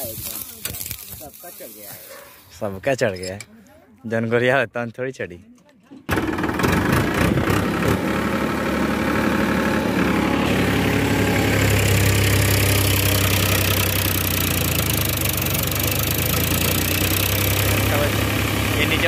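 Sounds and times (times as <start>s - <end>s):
tractor diesel engine running: 6.1s - 19.0s.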